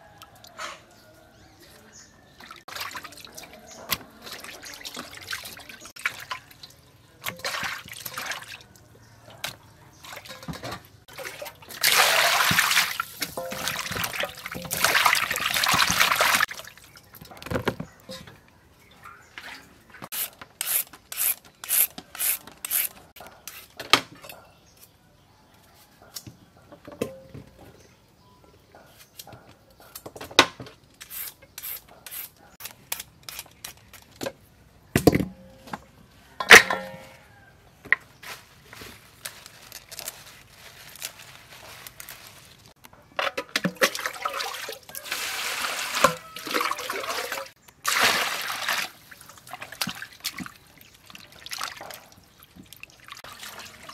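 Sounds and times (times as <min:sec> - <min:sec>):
metal bowl set down: 0:12.5 - 0:16.4, 0:36.4 - 0:37.3.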